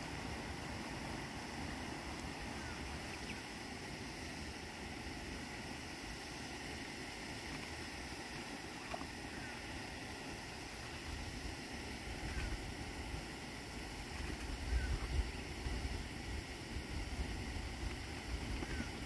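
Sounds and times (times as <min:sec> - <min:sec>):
wind rumbling on microphone: 0:12.0 - 0:19.0.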